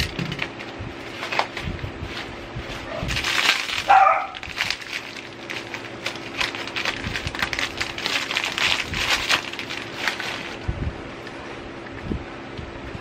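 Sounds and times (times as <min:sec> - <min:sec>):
plastic wrapping crinkling: 0:01.2 - 0:10.6.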